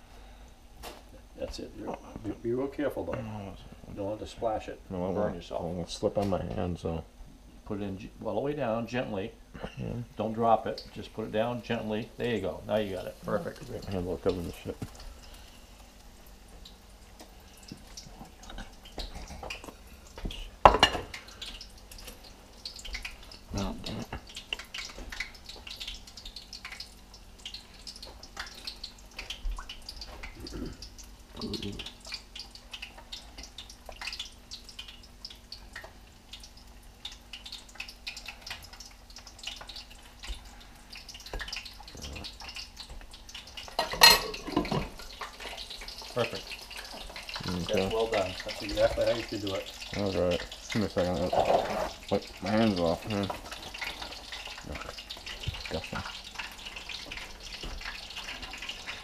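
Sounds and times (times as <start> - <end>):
faint steady hum: 0.0 - 59.0
dish knocking onto counter: 20.6 - 21.1
wet clicks and drips: 21.1 - 43.8, 52.2 - 59.0.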